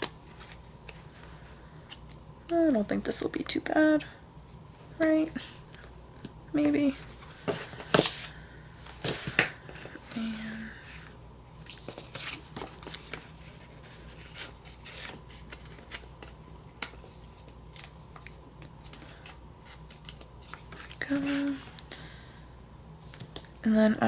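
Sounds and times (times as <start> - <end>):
paper rustling: 11.6 - 21.8.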